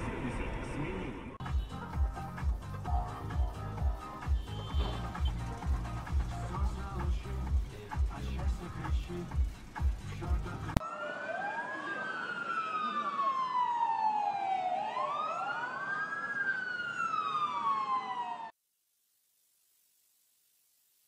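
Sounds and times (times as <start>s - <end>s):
street noise: 0.0s - 18.5s
music: 1.4s - 10.8s
emergency sirens wailing: 10.7s - 18.5s.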